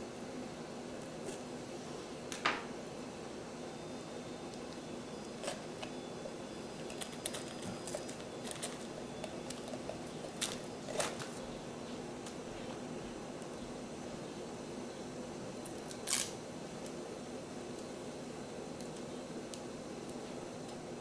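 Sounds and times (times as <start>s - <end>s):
steady low hum: 0.0s - 21.0s
bell pepper snapping and crackling: 15.6s - 17.0s.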